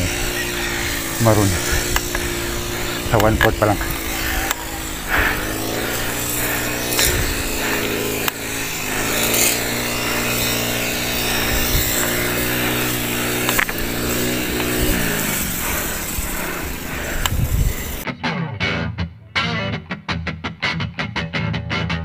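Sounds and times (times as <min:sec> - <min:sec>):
small petrol engine revving: 0:00.0 - 0:18.1.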